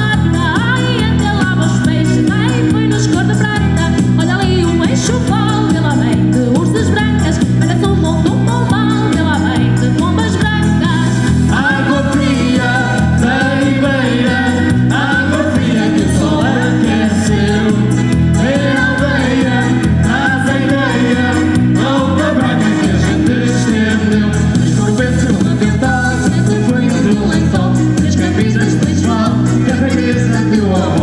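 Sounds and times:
bass line: 0.0s - 31.0s
live band playing: 0.0s - 31.0s
person singing: 11.4s - 31.0s.

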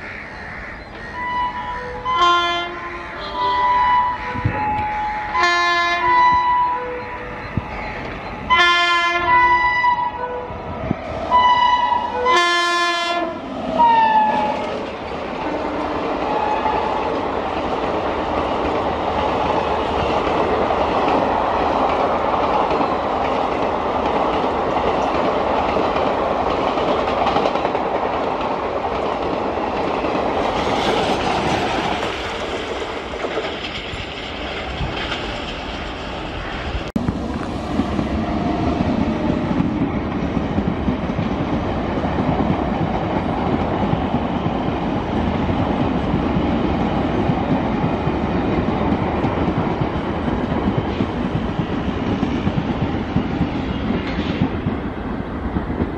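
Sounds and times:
train rumbling: 0.0s - 55.9s
train rushing past: 0.7s - 55.9s
wheels clattering over rail joints: 16.8s - 41.6s.

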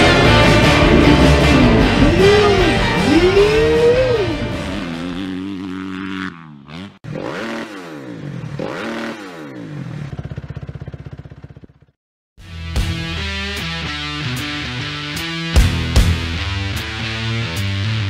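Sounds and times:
dirt bike engine revving: 0.0s - 11.8s.

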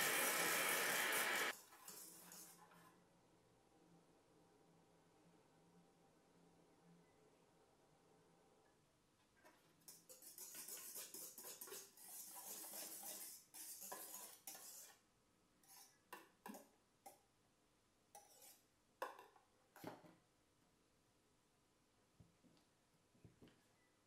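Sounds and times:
wire whisk scratching metal bowl: 0.0s - 2.9s, 9.9s - 15.0s, 18.2s - 18.6s
spatula scraping and knocking bowl: 9.5s - 15.0s.

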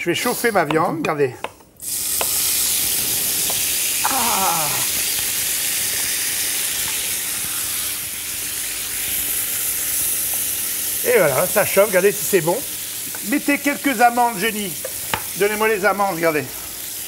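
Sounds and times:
meat sizzling in a frying pan: 1.8s - 17.0s.

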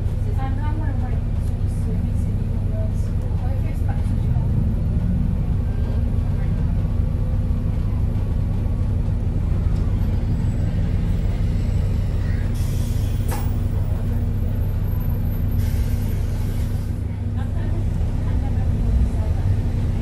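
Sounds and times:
bus engine rumble: 0.0s - 20.0s
air brake hiss: 12.4s - 13.4s, 15.5s - 17.0s.

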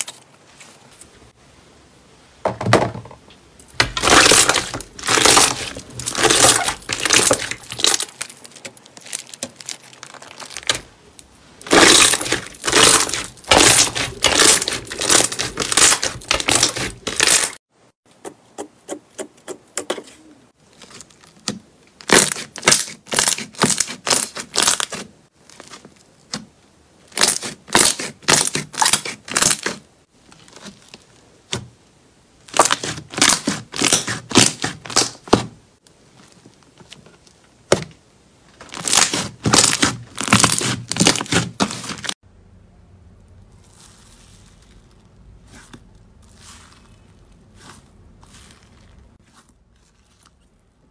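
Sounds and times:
slime crackling and popping: 3.7s - 17.6s, 20.8s - 26.4s, 32.4s - 35.4s, 38.6s - 42.1s.

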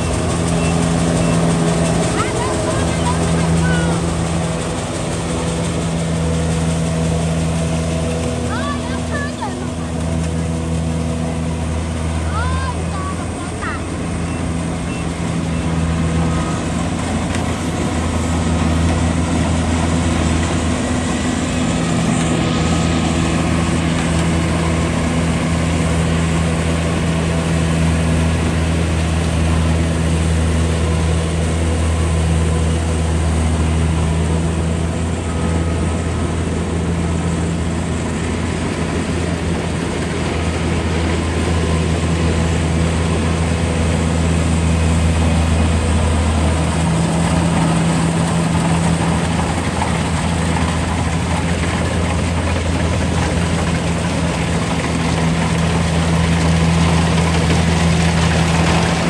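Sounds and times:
combine harvester running: 0.0s - 59.0s.

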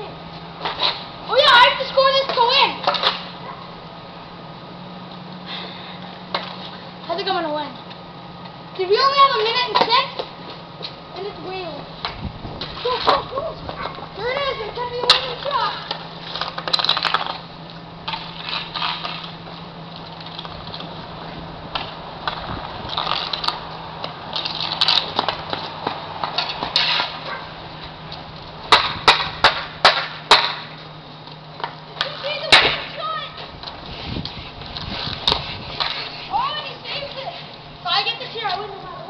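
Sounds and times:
hockey sticks clacking on pavement: 0.3s - 3.7s, 6.0s - 39.0s
voices calling out: 12.7s - 16.6s, 23.0s - 33.8s, 35.2s - 39.0s.

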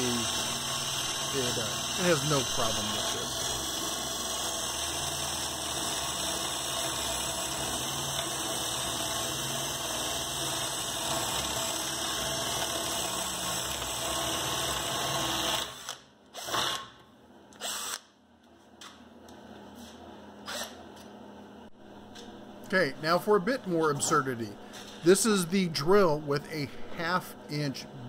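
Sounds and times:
drill bit drawn out: 0.0s - 16.9s, 17.6s - 18.0s
drill boring through wood: 0.0s - 16.9s, 17.6s - 18.0s.

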